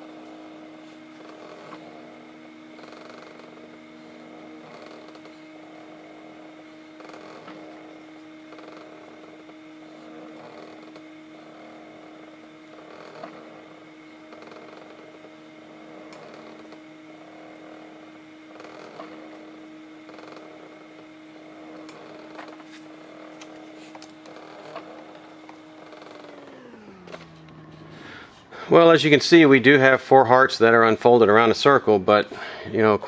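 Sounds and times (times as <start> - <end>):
stepper motors whining: 0.0 - 33.0.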